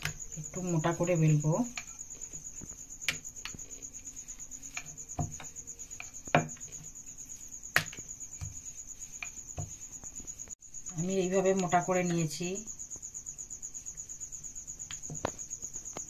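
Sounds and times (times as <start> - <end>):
cricket trilling: 0.0 - 16.0
rolling pin knocking on board: 4.8 - 6.7.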